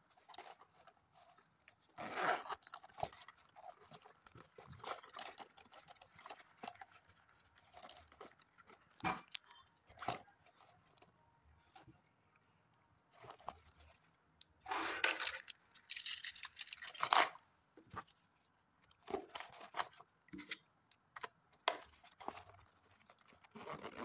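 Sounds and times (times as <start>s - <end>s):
bag rubbing and rustling: 0.3s - 6.4s, 23.4s - 24.0s
bag scraping: 2.0s - 2.8s, 23.5s - 24.0s
clips and zipper clicking: 23.5s - 24.0s.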